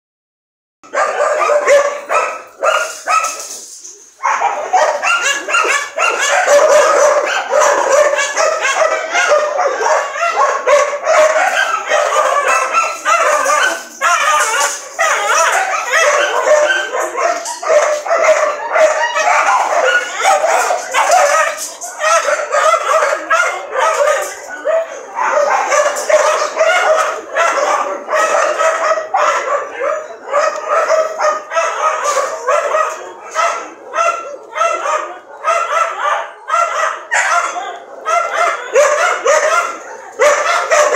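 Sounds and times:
dogs barking and yipping: 0.8 - 40.9.

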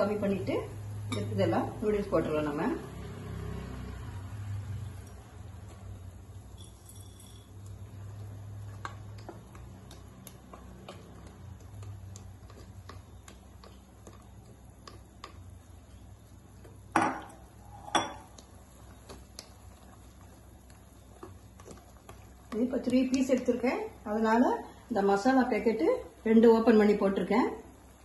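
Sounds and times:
low steady hum: 0.0 - 28.0
simmering broth: 2.4 - 24.9
spatula working noodles in pan: 7.6 - 16.9, 17.7 - 24.4.

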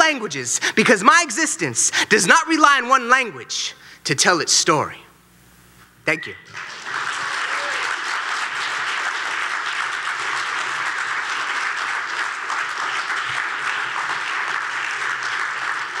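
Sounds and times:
audience applauding: 6.5 - 16.0.

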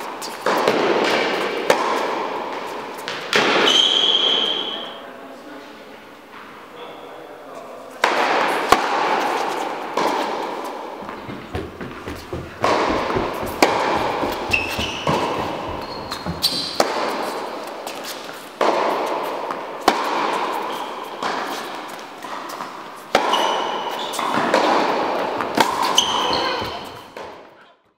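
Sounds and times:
tennis ball bouncing: 0.0 - 3.7, 8.0 - 27.5
racket striking tennis ball: 0.0 - 3.8, 8.0 - 27.5
shoe squeaks on court: 3.5 - 5.0, 11.0 - 18.4, 20.6 - 21.7, 23.3 - 24.4, 25.6 - 27.2.

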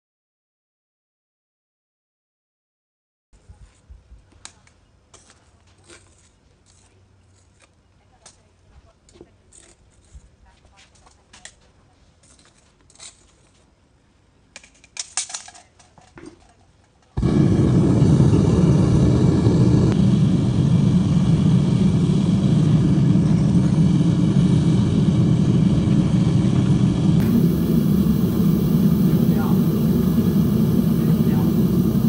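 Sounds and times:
gas flame roaring: 17.2 - 32.0.

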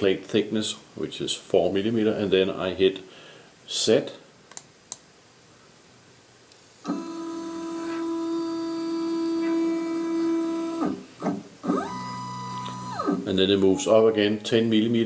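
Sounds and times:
stepper motor whining: 6.9 - 11.0, 11.6 - 13.3.

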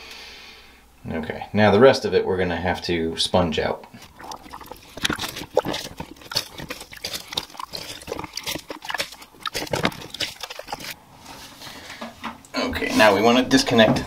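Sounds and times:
water dripping and splashing: 4.0 - 11.0
wet sponge squelching: 4.0 - 11.0.

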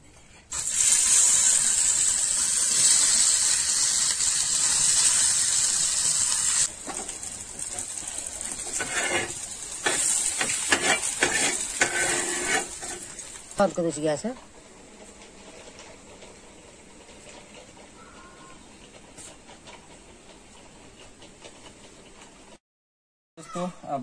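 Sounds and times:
okra sizzling on a hot pan: 0.5 - 14.4
knife scraping food off a pan: 8.6 - 13.2.

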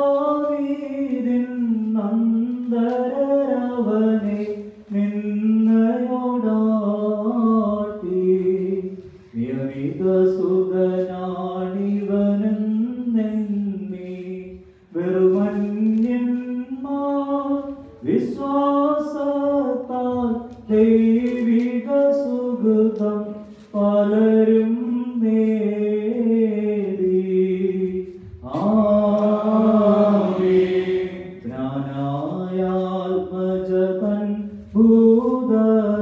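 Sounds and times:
voices singing liturgical chant: 23.8 - 33.6.

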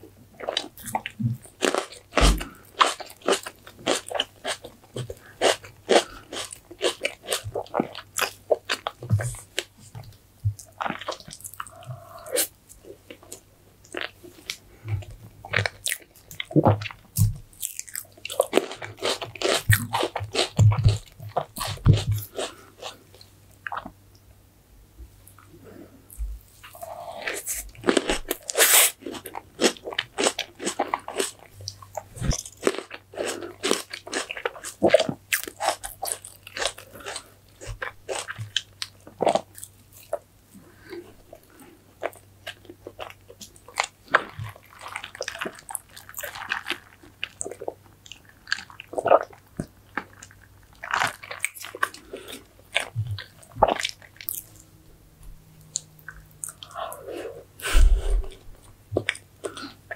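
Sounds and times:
person biting and chewing food: 15.5 - 23.0, 26.6 - 40.2, 48.4 - 54.8.

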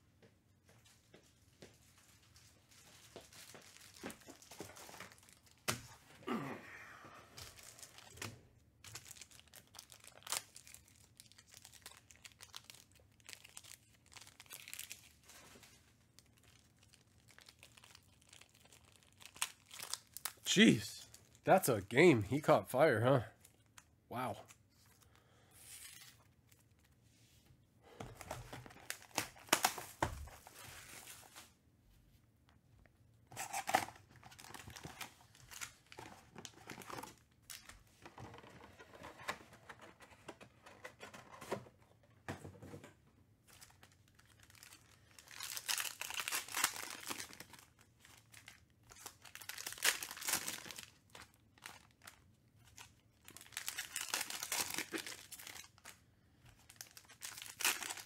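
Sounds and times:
foil wrappers tearing and crinkling: 7.4 - 20.4, 28.6 - 31.4, 43.5 - 56.0, 56.6 - 58.0.

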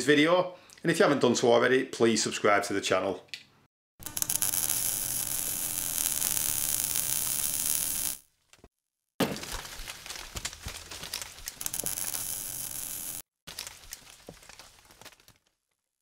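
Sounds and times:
crackling hiss: 4.0 - 8.2, 11.6 - 13.2.

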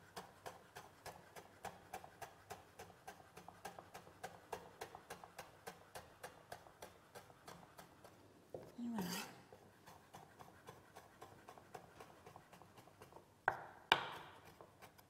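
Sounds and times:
knife chopping on wooden board: 0.1 - 8.7, 9.5 - 15.0.

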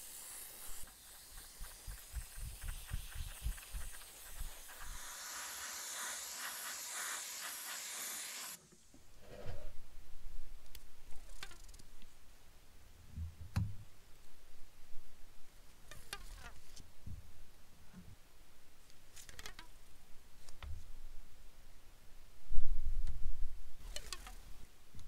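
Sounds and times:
airbrush spraying hiss: 0.0 - 8.6.

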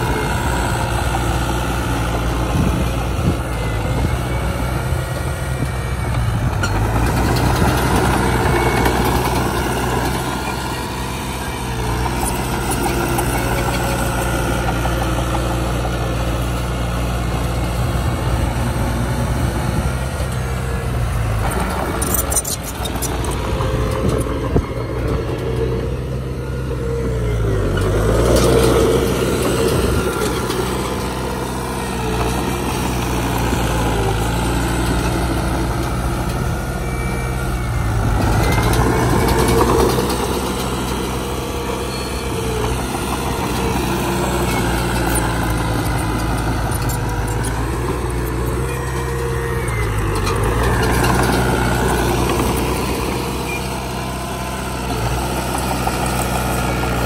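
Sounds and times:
heavy diesel engine running: 0.0 - 57.0.

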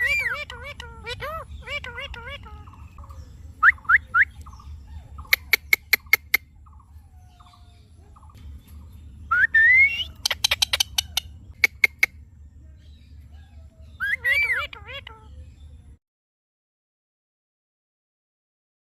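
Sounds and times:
parakeets chirping and clicking: 0.0 - 3.2, 10.1 - 12.2
parakeet squawk rising: 14.0 - 15.4.

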